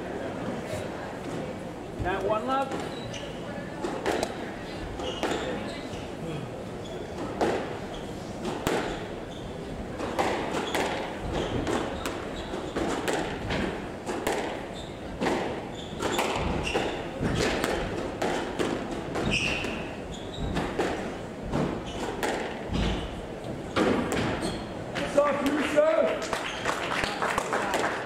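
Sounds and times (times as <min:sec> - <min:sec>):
squash ball hitting racquets and walls: 0:02.0 - 0:05.8, 0:06.9 - 0:26.6
shoe squeaks on wooden floor: 0:02.8 - 0:03.4, 0:05.0 - 0:06.1, 0:06.8 - 0:07.2, 0:08.9 - 0:09.7, 0:10.6 - 0:12.9, 0:14.7 - 0:17.5, 0:19.2 - 0:20.8, 0:21.8 - 0:23.2, 0:24.4 - 0:24.8.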